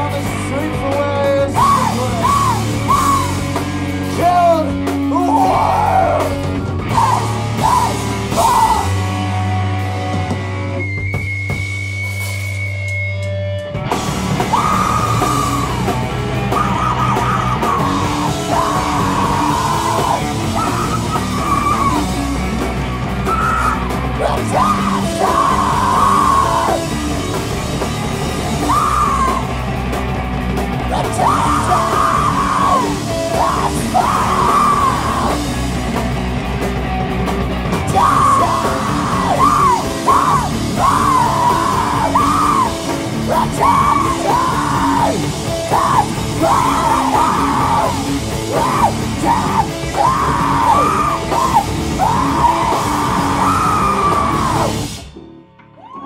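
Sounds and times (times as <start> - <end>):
drums: 0.0 - 56.0
guitars: 0.0 - 56.0
person yelling vocals: 1.3 - 3.5, 4.2 - 9.0, 16.6 - 22.1, 23.3 - 26.9, 30.9 - 35.4, 37.9 - 54.8.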